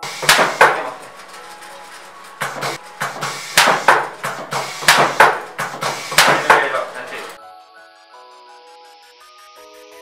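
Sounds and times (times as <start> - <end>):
skewering machine knocking: 0.0 - 1.6, 2.3 - 7.2.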